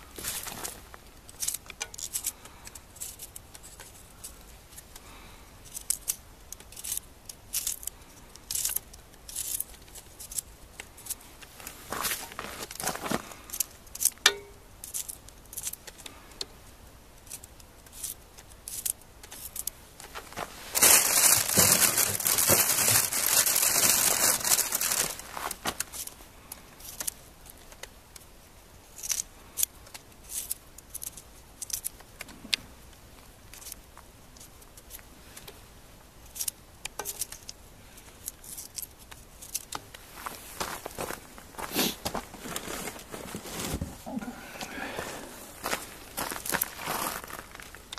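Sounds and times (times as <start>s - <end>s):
loud crinkling rustling: 0.0s - 14.1s, 17.2s - 27.9s, 36.3s - 44.1s, 44.7s - 47.9s.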